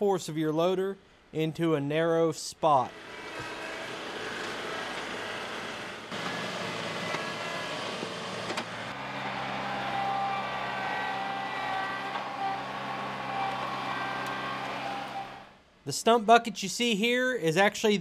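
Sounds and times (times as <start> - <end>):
tractor diesel engine running: 2.9 - 15.6.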